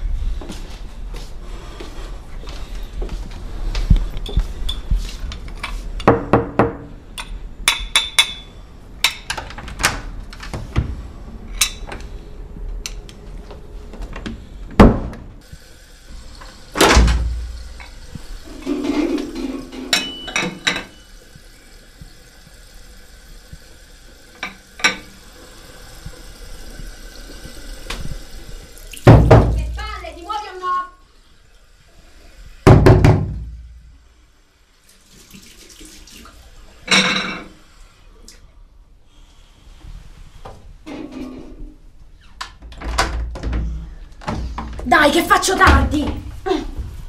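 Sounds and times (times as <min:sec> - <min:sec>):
household knocks: 0:29.1 - 0:29.6, 0:32.7 - 0:33.5.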